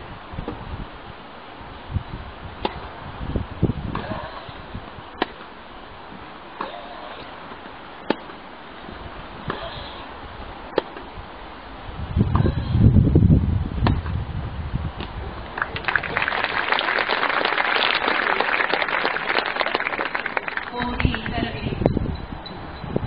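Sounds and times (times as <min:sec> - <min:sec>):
low background hum: 0:00.0 - 0:23.0
tennis racket hitting ball: 0:05.2 - 0:05.5, 0:08.0 - 0:08.4.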